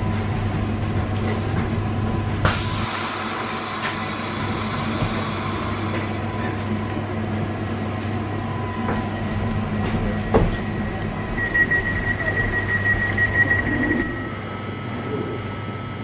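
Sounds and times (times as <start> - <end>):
door signal beeping: 7.3 - 14.8.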